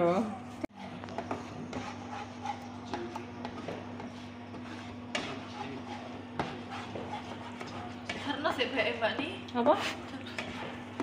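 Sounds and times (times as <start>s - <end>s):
spatula scraping a frying pan: 0.7s - 11.0s.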